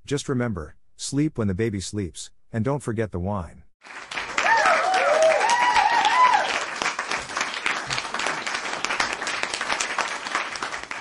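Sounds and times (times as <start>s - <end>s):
audience applause: 3.8s - 11.0s
voices cheering: 4.4s - 6.8s.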